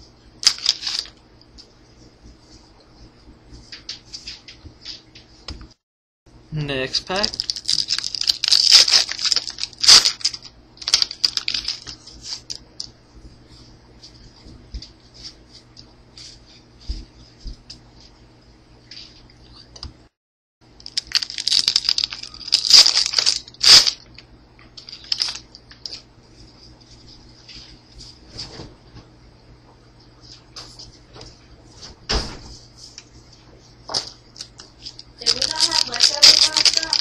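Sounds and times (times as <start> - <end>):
cards rustling and clicking: 0.4 - 1.1, 7.2 - 12.9, 20.9 - 24.0, 24.8 - 26.0, 34.0 - 37.0
wrapper tearing and crinkling: 0.4 - 1.1, 7.2 - 12.6, 20.8 - 24.1, 24.8 - 26.0, 34.4 - 37.0.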